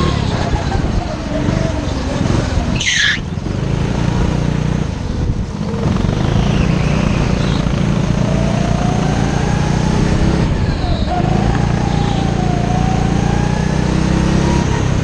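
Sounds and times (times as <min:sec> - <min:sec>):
go-kart engine buzzing: 0:00.0 - 0:15.0
nearby go-kart engine: 0:00.0 - 0:15.0.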